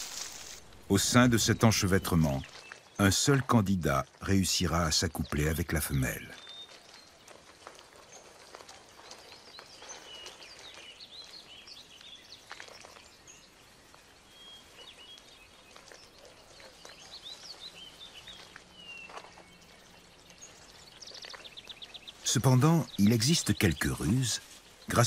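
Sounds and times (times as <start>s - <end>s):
soft hiss: 0.0s - 2.6s
snakes rustling over dry leaves: 0.0s - 25.0s
bird chirps and calls: 20.4s - 25.0s.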